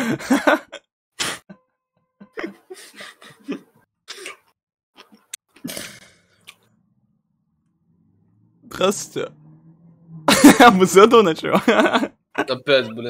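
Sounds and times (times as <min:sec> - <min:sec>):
men laughing hard: 0:00.0 - 0:01.5, 0:02.2 - 0:03.8, 0:10.3 - 0:12.5
cough: 0:04.1 - 0:04.5.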